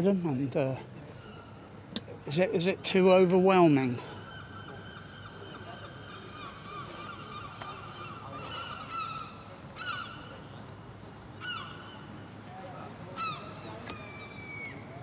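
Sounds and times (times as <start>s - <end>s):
seagulls calling: 1.0s - 1.8s, 2.9s - 10.7s, 11.3s - 12.2s, 13.1s - 15.0s.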